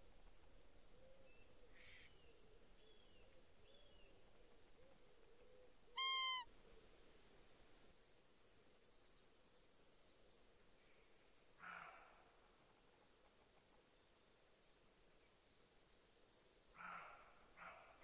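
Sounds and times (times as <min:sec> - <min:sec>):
faint high bird chirps: 0:06.0 - 0:06.5
high clear animal call: 0:06.0 - 0:06.5.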